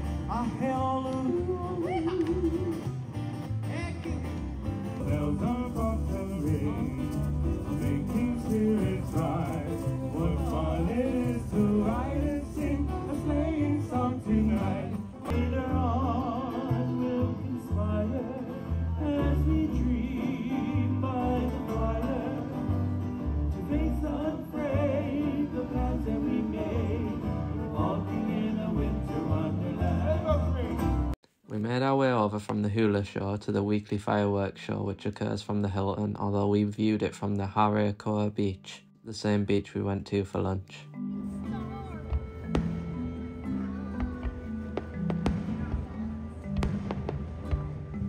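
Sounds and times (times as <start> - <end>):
person singing: 0.0 - 3.0, 5.0 - 30.9
plucked string accompaniment: 0.0 - 31.2, 40.7 - 48.0
steady low beat: 41.4 - 48.0.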